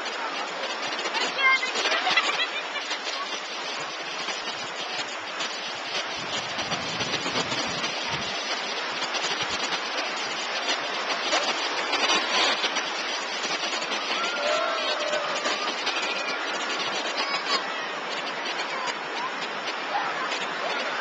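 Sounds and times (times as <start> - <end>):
waves breaking on shore: 0.0 - 21.0.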